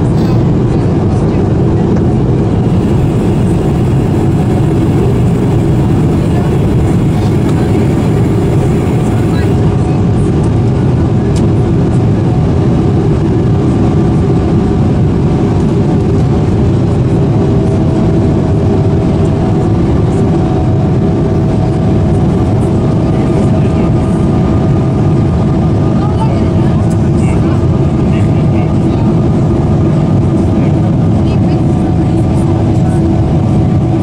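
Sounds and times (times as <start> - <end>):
faint engine tones: 0.0 - 12.4
airplane cabin engine rush: 0.0 - 34.0.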